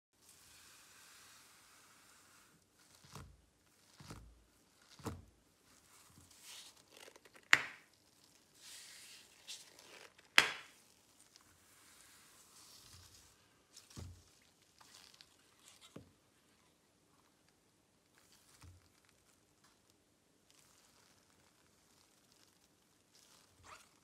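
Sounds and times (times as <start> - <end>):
rustling: 0.2 - 24.0
gloved hands tapping on rubber mat: 7.5 - 7.8, 10.4 - 10.7.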